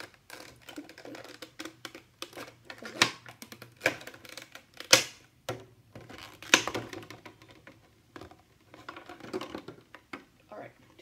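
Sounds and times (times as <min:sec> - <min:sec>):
plastic packaging crinkling: 0:00.0 - 0:04.9.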